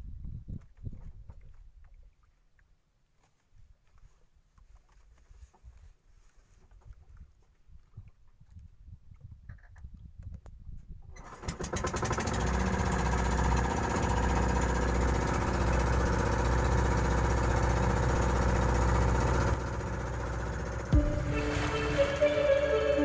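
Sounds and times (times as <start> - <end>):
boat engine running: 11.5 - 23.0.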